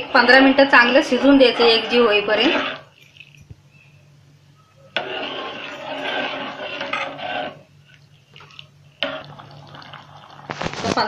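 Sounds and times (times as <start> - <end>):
spoon scraping metal pot: 0.1 - 3.5, 4.9 - 9.4.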